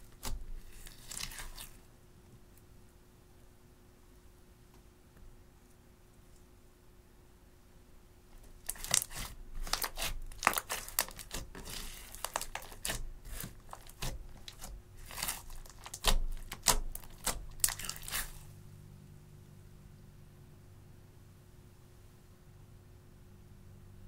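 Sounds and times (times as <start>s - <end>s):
slime crackling and popping: 8.5s - 18.5s.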